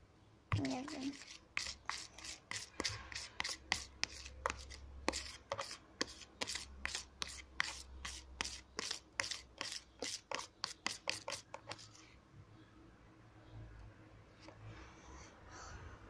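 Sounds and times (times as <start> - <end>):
metal spoon scraping plastic container: 0.5 - 11.9.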